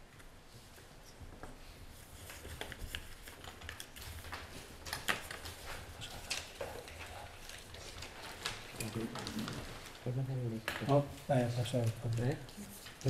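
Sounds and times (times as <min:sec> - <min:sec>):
paper rustling: 0:01.9 - 0:10.2, 0:10.9 - 0:13.0.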